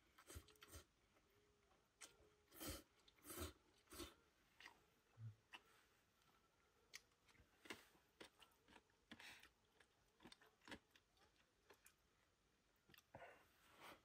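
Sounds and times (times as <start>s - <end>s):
person chewing: 0.1s - 0.9s, 2.0s - 5.8s, 6.9s - 12.2s.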